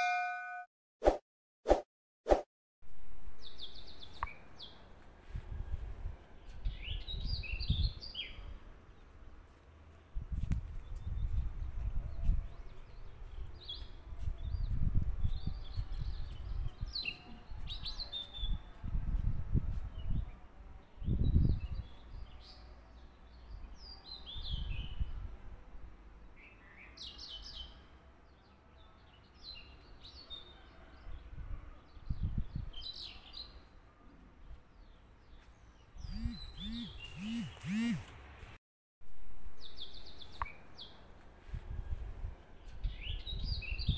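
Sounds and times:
small birds chirping: 0:34.5 - 0:38.1.

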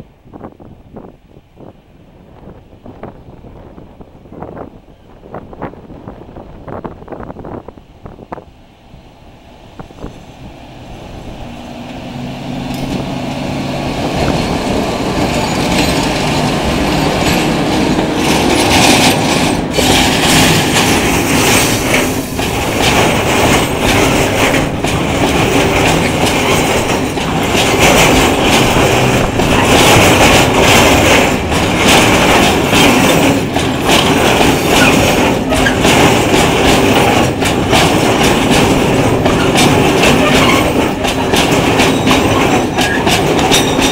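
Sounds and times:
freight train passing: 0:00.0 - 0:43.9
wheels clacking over rail joints: 0:09.4 - 0:43.9.

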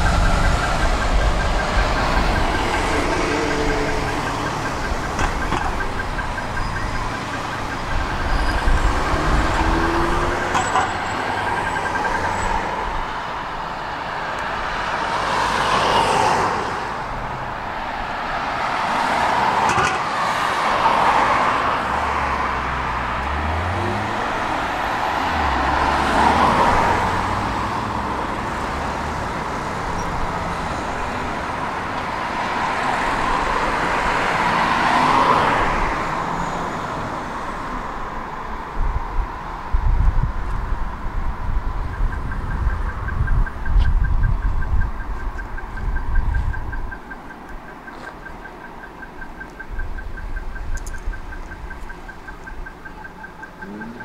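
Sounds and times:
bus rumbling pulling away: 0:00.0 - 0:15.6, 0:21.1 - 0:38.6
cars passing: 0:00.0 - 0:54.0.

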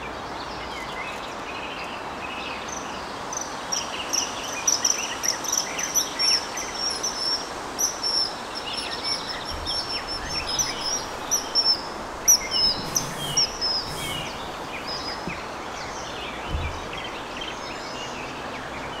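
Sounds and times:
kingfisher high piping calls: 0:09.8 - 0:15.6.

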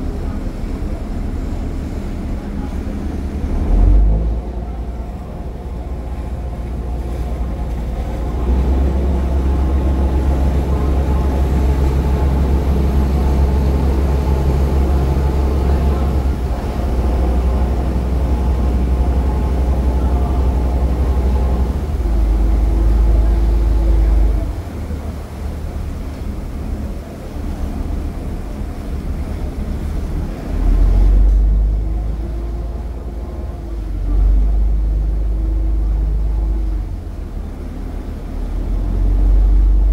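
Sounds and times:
diesel engine drone: 0:00.0 - 0:39.9.

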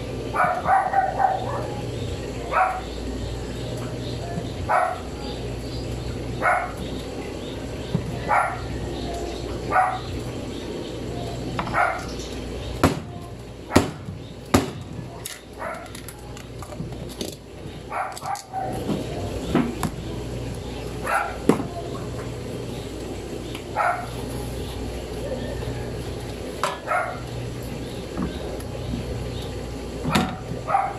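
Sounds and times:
dog barking: 0:00.3 - 0:01.8, 0:02.5 - 0:02.9, 0:04.7 - 0:05.1, 0:06.4 - 0:06.8, 0:08.3 - 0:08.7, 0:09.7 - 0:10.1, 0:11.7 - 0:12.1, 0:15.6 - 0:15.9, 0:17.9 - 0:18.8, 0:21.0 - 0:21.5, 0:23.8 - 0:24.2, 0:26.8 - 0:27.2, 0:30.1 - 0:30.9.

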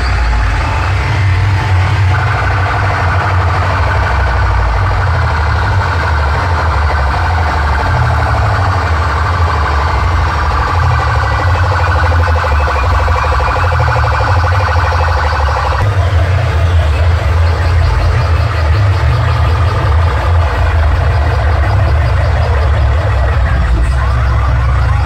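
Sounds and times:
loud music with heavy bass: 0:00.0 - 0:25.0
pulsing siren-like electronic tone: 0:02.0 - 0:25.0.

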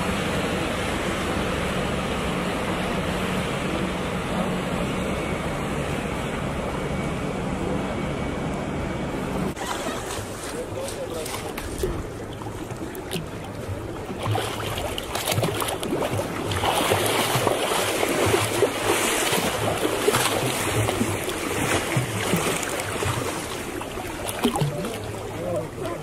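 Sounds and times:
boat engine hum: 0:00.0 - 0:26.0
water splashing around boat: 0:09.5 - 0:26.0.

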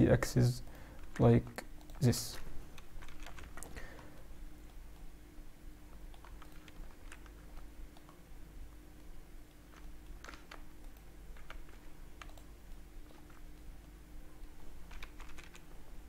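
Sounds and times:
low steady hum: 0:00.0 - 0:16.0
keyboard and mouse clicking: 0:01.0 - 0:03.8, 0:06.0 - 0:08.2, 0:09.8 - 0:15.7.

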